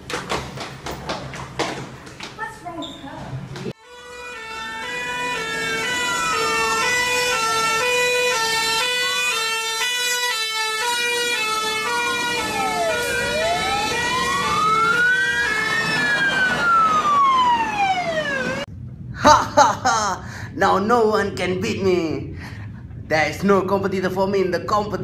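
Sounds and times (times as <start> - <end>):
two-tone hi-lo siren: 3.8 - 18.7
wailing siren: 3.8 - 18.7.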